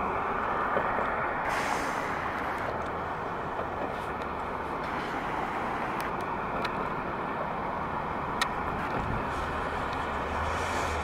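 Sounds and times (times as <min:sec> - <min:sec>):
car driving past: 0:09.2 - 0:11.0.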